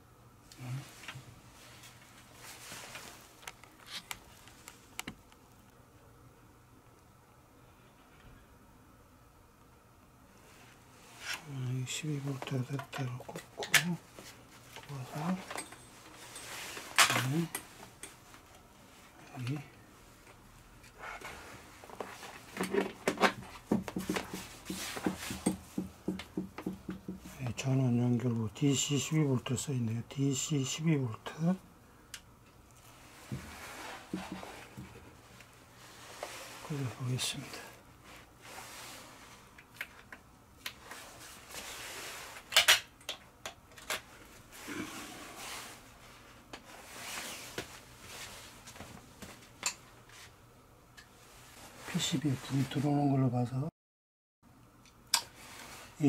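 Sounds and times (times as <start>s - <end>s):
soft rustling: 0.7s - 5.0s, 44.2s - 50.4s.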